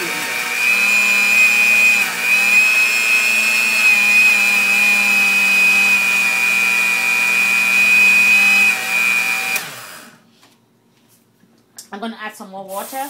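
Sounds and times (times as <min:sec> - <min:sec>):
blender motor whining: 0:00.0 - 0:10.2.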